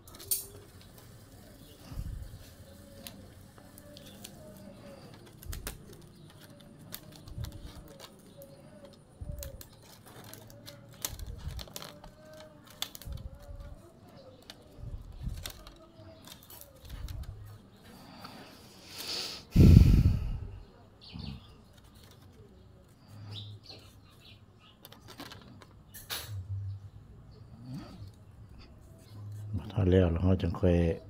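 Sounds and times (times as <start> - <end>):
bamboo strips clicking: 0.0 - 17.4, 23.7 - 26.3.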